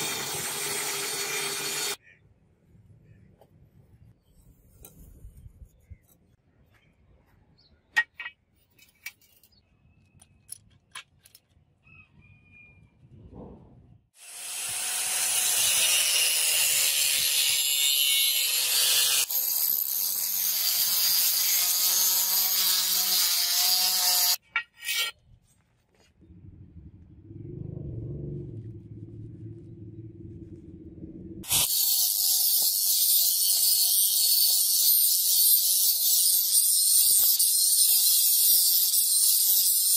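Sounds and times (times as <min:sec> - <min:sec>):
angle grinder grinding metal: 0:00.0 - 0:02.0, 0:14.2 - 0:25.2, 0:31.4 - 0:39.9.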